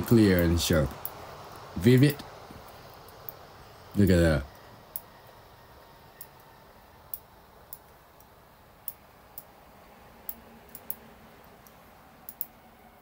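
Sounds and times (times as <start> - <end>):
faint room hum: 0.0 - 13.0
computer mouse clicking: 10.2 - 11.0, 11.6 - 12.5.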